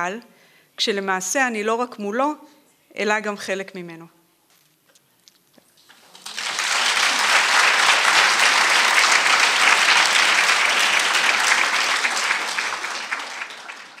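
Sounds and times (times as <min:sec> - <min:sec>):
audience applauding: 0:05.8 - 0:14.0.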